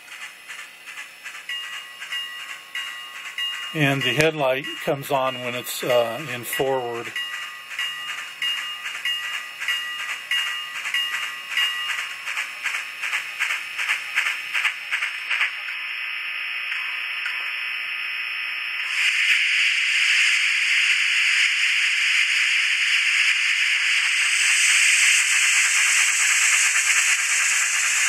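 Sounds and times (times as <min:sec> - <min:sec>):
steam locomotive exhaust chuffs: 0:00.0 - 0:15.6, 0:21.8 - 0:28.0
thin steady tone: 0:00.1 - 0:28.0
hiss of steam: 0:18.8 - 0:28.0.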